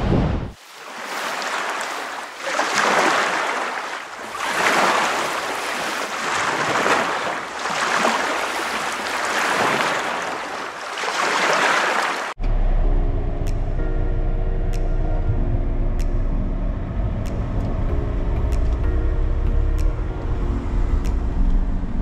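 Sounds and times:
ocean waves washing in: 0:00.0 - 0:12.4.

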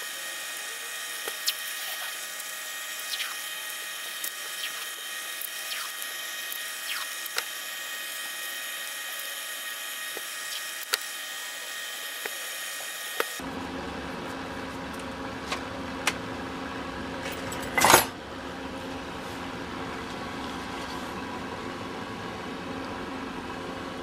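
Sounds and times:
steady high-pitched whine: 0:00.0 - 0:13.4
tape clicks and squeaks: 0:01.2 - 0:07.6, 0:10.1 - 0:11.1.

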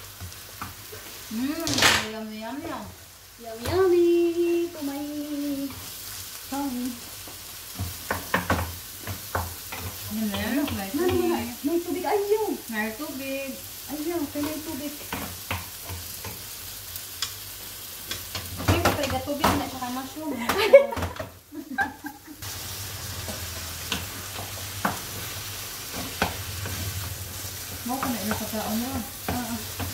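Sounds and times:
meat sizzling in a frying pan: 0:00.0 - 0:29.9
spatula scraping and knocking pan: 0:07.3 - 0:12.0, 0:23.2 - 0:29.9.

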